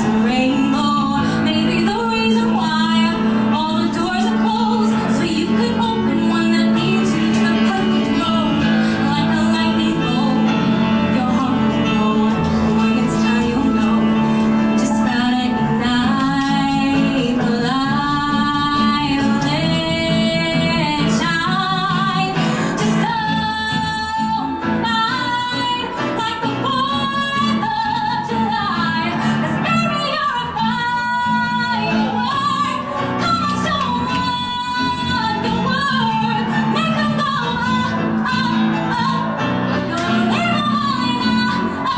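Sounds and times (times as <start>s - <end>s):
piano accompaniment: 0.0s - 30.9s
woman singing into microphone: 0.0s - 41.9s.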